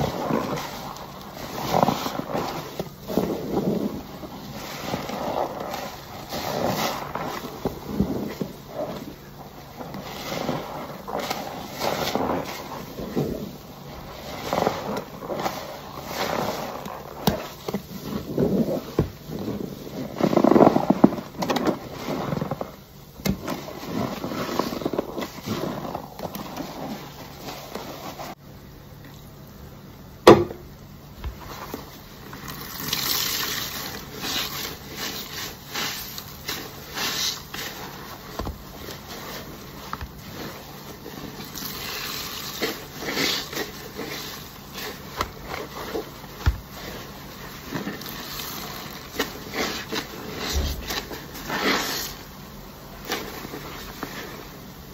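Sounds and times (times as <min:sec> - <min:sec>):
foamy sponge squelching: 0:00.0 - 0:28.4, 0:31.0 - 0:54.9
soapy water splashing: 0:32.4 - 0:52.2.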